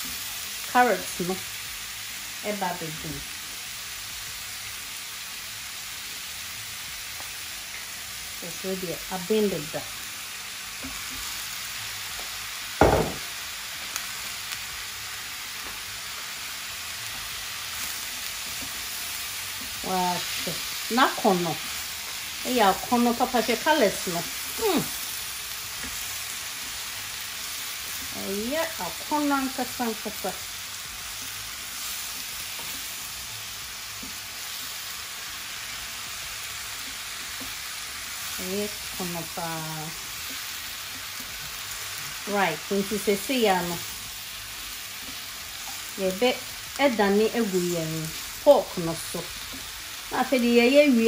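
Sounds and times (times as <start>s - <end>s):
food sizzling in a hot pan: 0.0s - 51.0s
loud knock: 12.8s - 13.2s.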